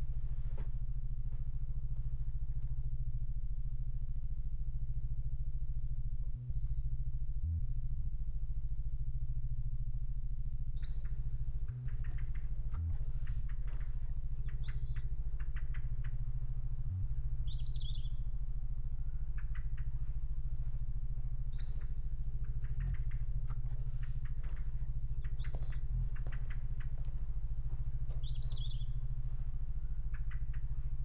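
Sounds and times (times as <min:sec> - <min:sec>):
steady low hum: 0:00.0 - 0:31.0
birds chirping: 0:10.8 - 0:31.0.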